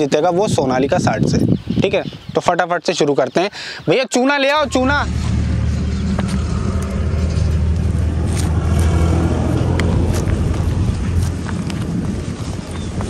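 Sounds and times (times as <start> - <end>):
diesel tractor engine idling: 4.6 - 12.8.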